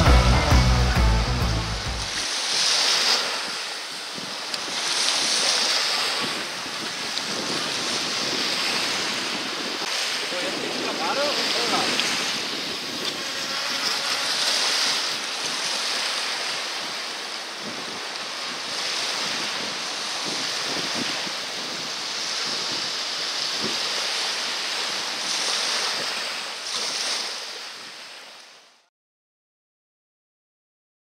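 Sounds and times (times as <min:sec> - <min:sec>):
sea surf breaking: 0:00.0 - 0:28.7
wind buffeting microphone: 0:03.2 - 0:26.4.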